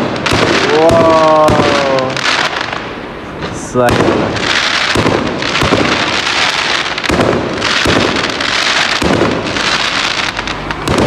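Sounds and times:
fireworks crackling and popping: 0:00.0 - 0:11.0.

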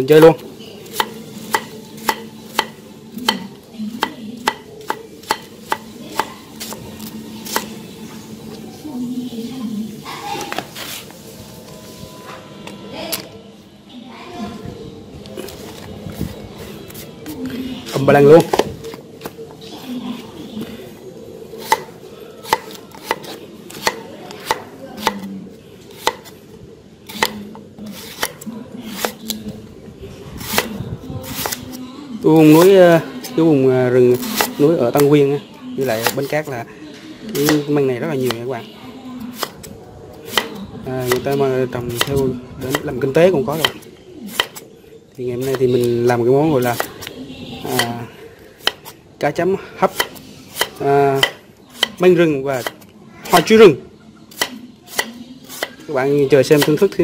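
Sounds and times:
knife chopping on wooden board: 0:00.9 - 0:07.7, 0:21.6 - 0:25.3, 0:25.9 - 0:26.3, 0:27.1 - 0:29.2, 0:37.4 - 0:37.7, 0:43.6 - 0:44.6, 0:49.9 - 0:52.0, 0:54.3 - 0:55.8.

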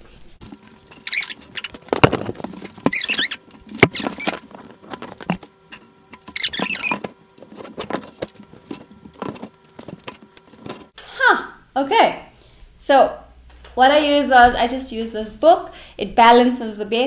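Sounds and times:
book pages rustling: 0:00.4 - 0:11.0
books knocking on wooden desk: 0:01.9 - 0:02.6.

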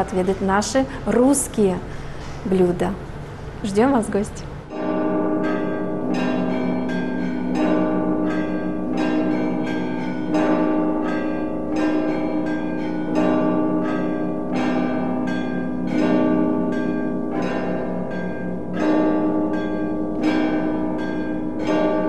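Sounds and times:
deep bell struck: 0:04.7 - 0:22.0
smaller higher bells ringing: 0:04.7 - 0:22.0.

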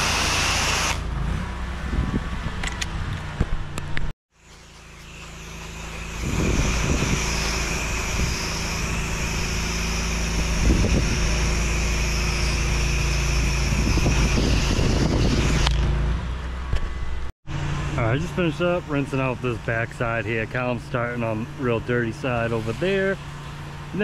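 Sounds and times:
engine drone: 0:00.0 - 0:24.0
pressure washer water spray hiss: 0:05.2 - 0:15.6.

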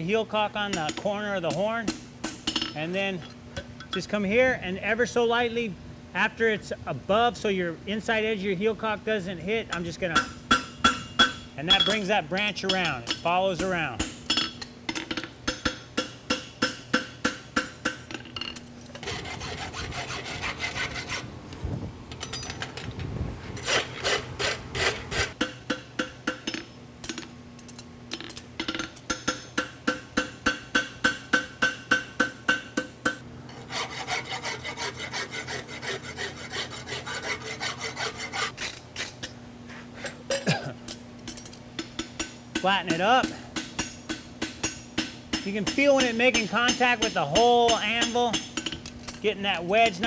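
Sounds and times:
anvil ringing: 0:09.8 - 0:14.6
hammer striking hot metal: 0:41.8 - 0:48.7.

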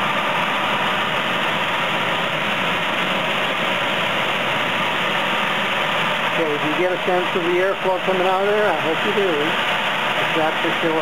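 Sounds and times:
furnace blower running: 0:00.0 - 0:11.0
rush of air blowing: 0:00.0 - 0:11.0.

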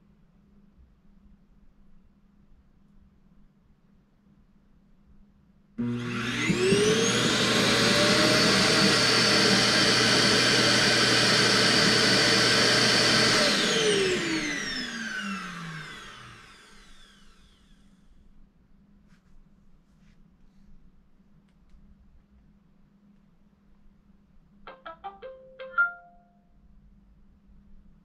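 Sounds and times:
robot vacuum motor whining: 0:05.8 - 0:17.7.

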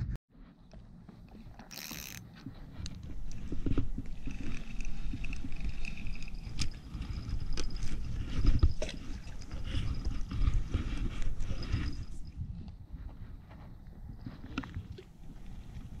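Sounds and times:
fishing rod handling noise: 0:00.6 - 0:12.1
wind rumbling on microphone: 0:01.8 - 0:16.0.

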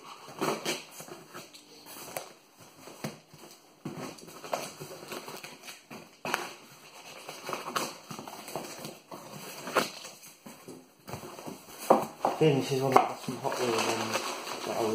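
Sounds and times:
cardboard rustling: 0:00.0 - 0:14.9.

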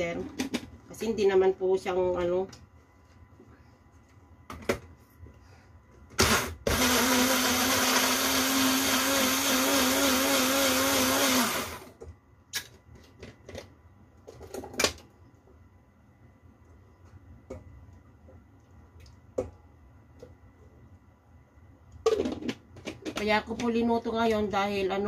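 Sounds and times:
blender running: 0:06.2 - 0:12.0.

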